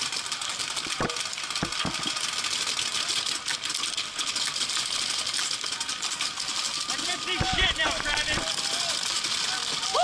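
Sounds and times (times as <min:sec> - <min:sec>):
paintball markers firing rapidly: 0:07.2 - 0:10.0
paintballs striking: 0:07.3 - 0:09.0.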